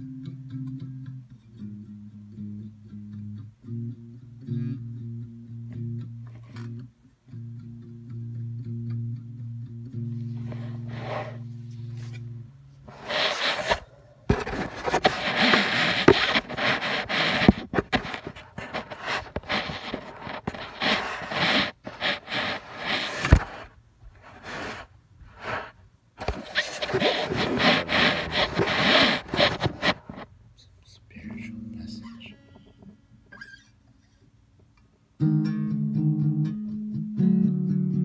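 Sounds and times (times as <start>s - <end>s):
fabric rubbing on microphone: 10.4s - 12.2s, 12.9s - 30.3s.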